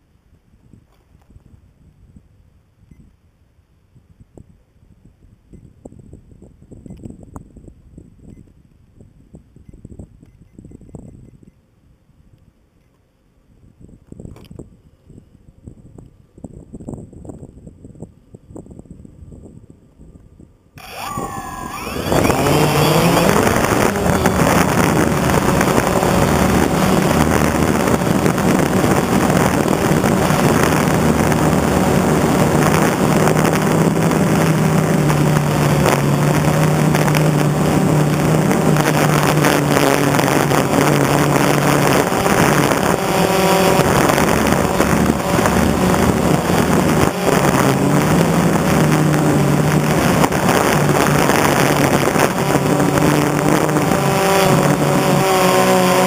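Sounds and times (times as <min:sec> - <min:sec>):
drone motors whining and buzzing: 0:20.8 - 0:56.0
propeller wash rushing: 0:20.8 - 0:56.0.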